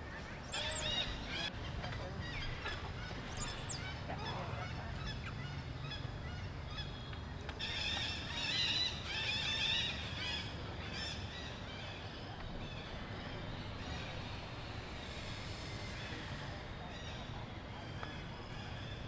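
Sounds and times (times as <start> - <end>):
animals making high arching calls: 0.1 - 7.0.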